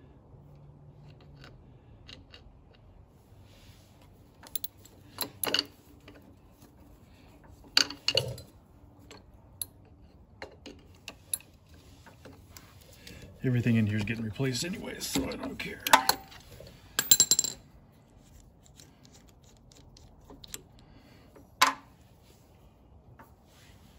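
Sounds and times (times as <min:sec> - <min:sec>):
metal tools clicking and clanking: 0:04.4 - 0:06.3, 0:07.6 - 0:13.2, 0:13.9 - 0:17.6.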